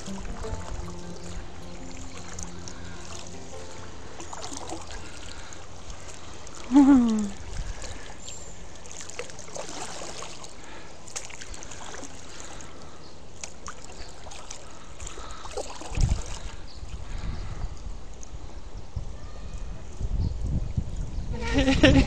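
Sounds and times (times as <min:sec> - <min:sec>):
small splashes: 0:00.0 - 0:17.2
water lapping around kayak: 0:00.0 - 0:18.8.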